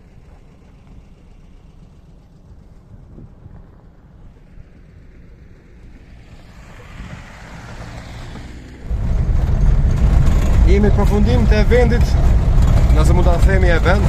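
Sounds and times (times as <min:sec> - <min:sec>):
car driving on dirt road: 0:00.0 - 0:14.0
vehicle engine rumble: 0:00.0 - 0:14.0
wind buffeting microphone: 0:01.8 - 0:05.1, 0:08.8 - 0:14.0.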